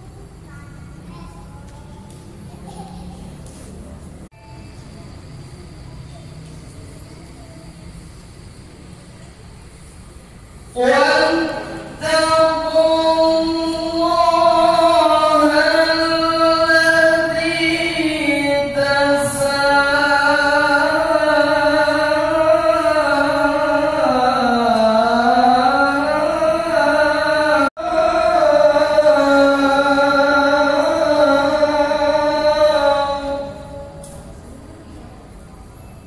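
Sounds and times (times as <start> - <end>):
melodic recitation by single voice: 10.7 - 34.5.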